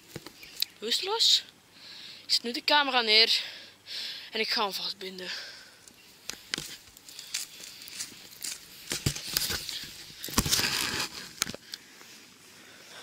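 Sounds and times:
camera handling on pine needles: 5.9 - 11.8.

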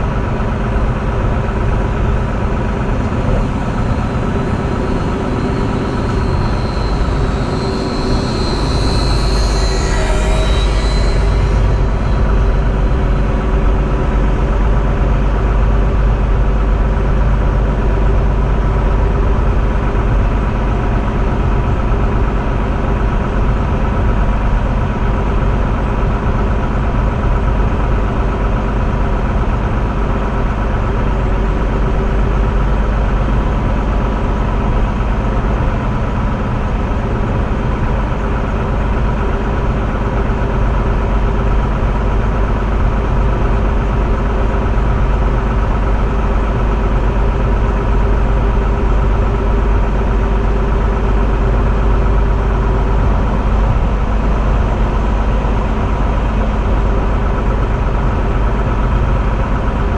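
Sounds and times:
train drive hum: 0.0 - 21.5
train rumbling on track: 0.0 - 59.9.

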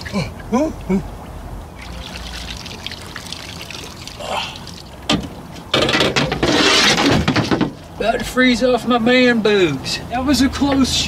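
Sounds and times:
water lapping and sloshing: 0.0 - 5.8
water streaming off a body: 1.7 - 5.1
loud water splashing: 1.7 - 5.6.

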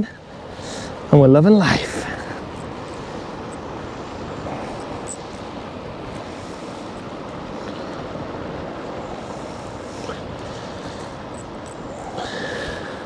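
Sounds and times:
waves washing on shore: 0.0 - 13.0
wind buffeting microphone: 0.0 - 13.0
faint high ticks: 9.6 - 12.3.

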